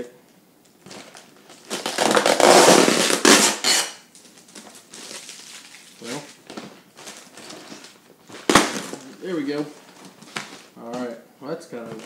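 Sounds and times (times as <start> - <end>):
plastic packaging crinkling: 0.7 - 3.5, 4.1 - 10.8.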